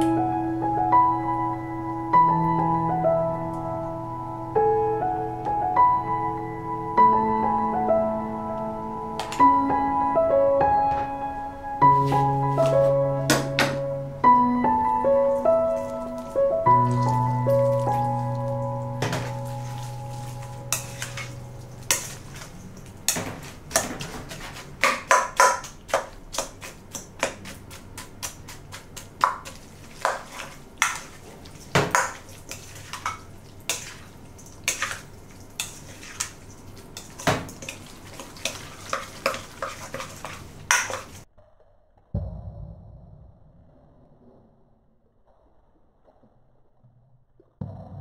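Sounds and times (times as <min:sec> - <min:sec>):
spoon clinking and scraping metal bowl: 0:19.1 - 0:27.6, 0:29.2 - 0:35.0, 0:35.6 - 0:41.2.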